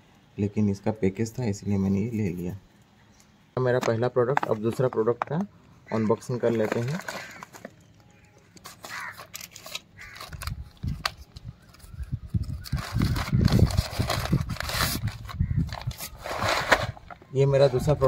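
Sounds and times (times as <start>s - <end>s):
crinkling plastic and foil: 5.9s - 18.0s
plastic mailer tearing: 6.4s - 7.9s, 8.5s - 11.3s, 11.9s - 17.1s.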